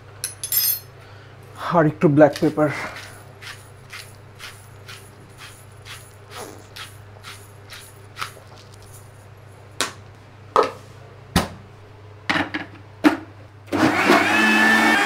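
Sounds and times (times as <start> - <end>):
blender whining: 13.7 - 15.0.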